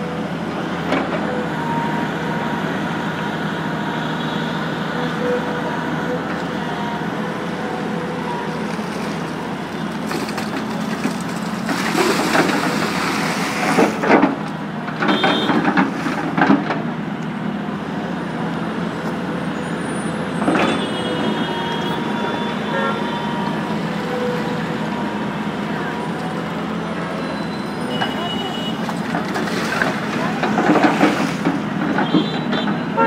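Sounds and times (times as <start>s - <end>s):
excavator diesel engine running: 0.0s - 33.0s
bucket scraping and clattering in rock: 8.7s - 14.4s, 28.8s - 32.6s.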